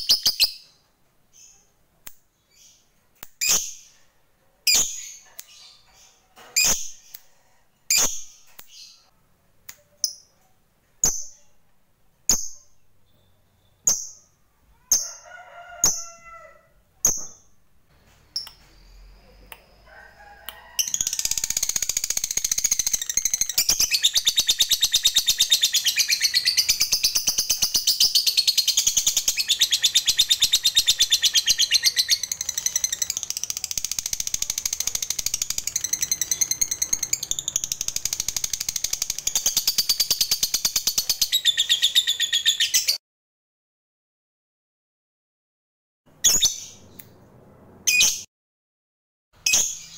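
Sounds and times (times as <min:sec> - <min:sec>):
lovebird chirping and trilling: 0:00.0 - 0:00.7, 0:03.4 - 0:04.0, 0:04.7 - 0:07.2, 0:07.9 - 0:09.1, 0:12.3 - 0:15.2, 0:20.8 - 0:43.0, 0:46.2 - 0:47.0, 0:47.9 - 0:48.3, 0:49.4 - 0:49.9.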